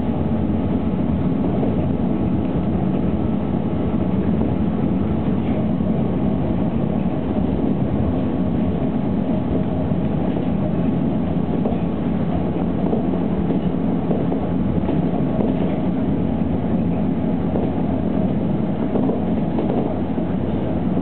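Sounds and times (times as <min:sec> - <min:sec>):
monorail rumble: 0:00.0 - 0:21.0.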